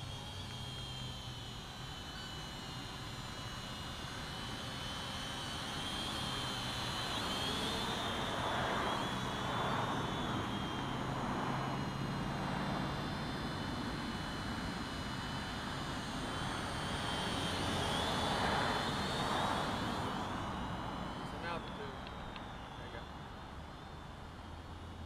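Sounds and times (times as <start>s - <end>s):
drone motors whining: 0.0s - 25.0s.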